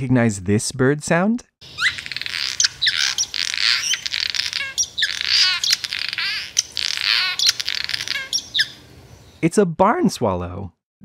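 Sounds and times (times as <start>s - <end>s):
swallow twittering song: 1.6s - 9.4s.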